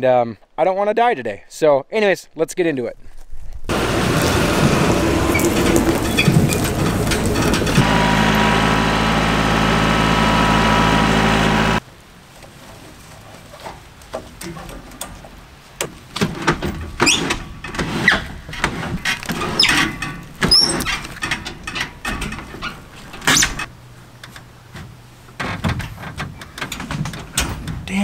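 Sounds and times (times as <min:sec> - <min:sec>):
knocks and clanks on metal: 0:05.2 - 0:08.0, 0:14.1 - 0:23.7, 0:24.3 - 0:27.9.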